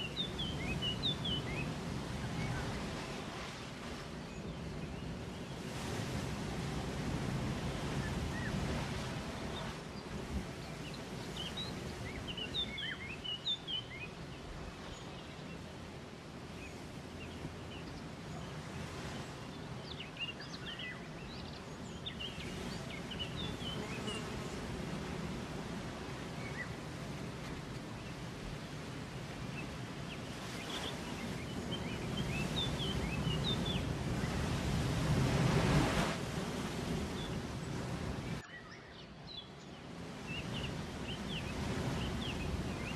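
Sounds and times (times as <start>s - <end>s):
small birds chirping: 0.0s - 5.7s, 7.8s - 15.8s, 16.5s - 25.1s, 27.9s - 35.1s.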